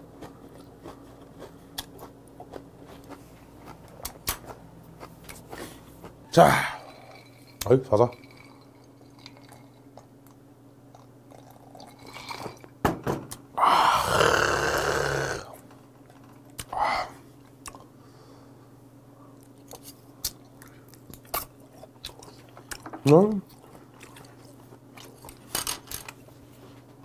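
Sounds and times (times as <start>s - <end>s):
chewing clicks: 0.2s - 5.4s
man exhaling loudly: 13.6s - 15.5s
swallowing drink: 13.6s - 15.6s.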